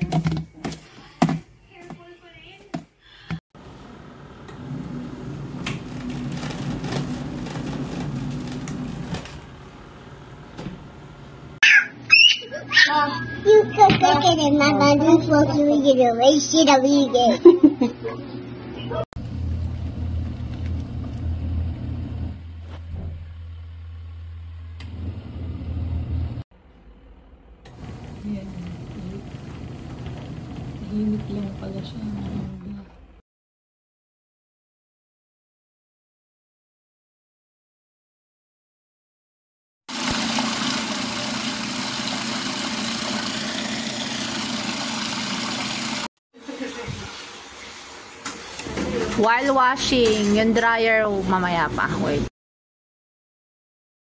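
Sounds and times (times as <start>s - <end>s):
washing machine motor hum: 3.6s - 11.6s, 19.2s - 26.4s, 27.2s - 33.2s, 39.9s - 47.4s
water churning: 39.9s - 46.1s.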